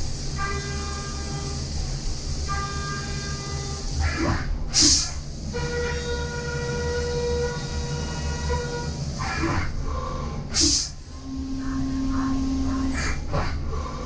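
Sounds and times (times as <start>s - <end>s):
milling machine whine: 5.5s - 14.0s.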